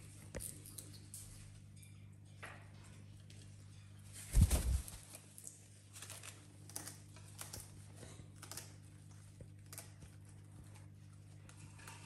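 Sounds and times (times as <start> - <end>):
parrots tearing leaves: 4.4 - 12.0.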